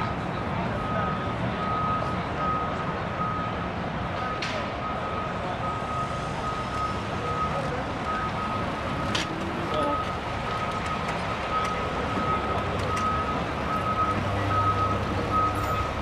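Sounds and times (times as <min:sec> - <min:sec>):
city traffic rumble: 0:00.0 - 0:16.0
backup alarm beeping: 0:04.8 - 0:16.0.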